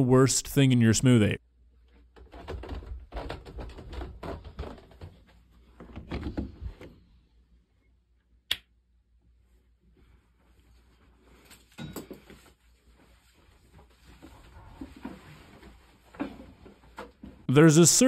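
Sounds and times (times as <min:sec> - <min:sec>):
footsteps on carpeted stairs: 0:02.2 - 0:06.9.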